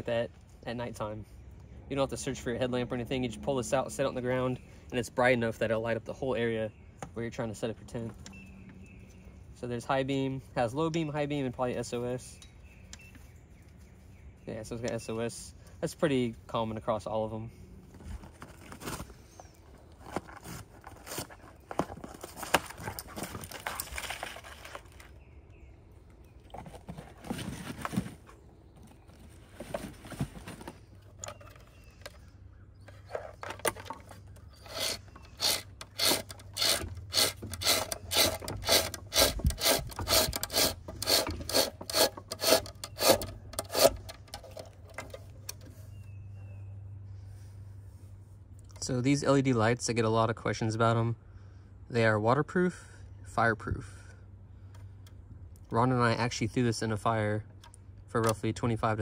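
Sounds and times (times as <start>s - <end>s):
scraping and rubbing handling noise: 17.8s - 25.2s, 26.4s - 46.1s
regular clicks of reel unwinding: 34.6s - 45.7s.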